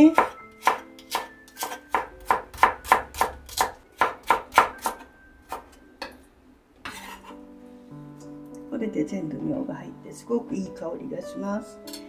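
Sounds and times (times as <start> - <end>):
knife slicing on wooden board: 6.9 - 7.4.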